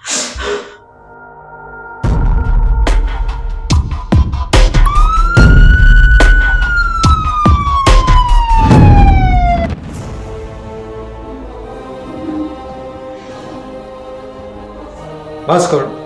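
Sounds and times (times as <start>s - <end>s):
police siren wailing: 4.8s - 9.8s
heavy booming hits: 8.5s - 11.1s.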